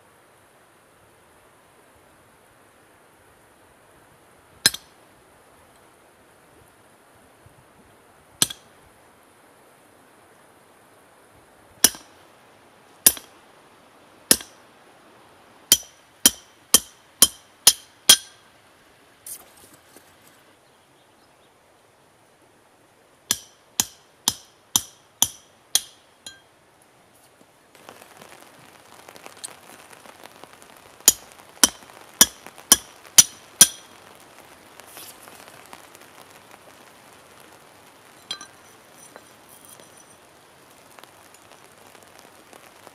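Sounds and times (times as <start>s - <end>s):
faint steady hiss: 0.0s - 42.9s
hammer striking steel punch: 11.8s - 12.1s, 13.1s - 13.3s, 14.3s - 14.5s, 15.7s - 18.3s, 23.3s - 26.4s.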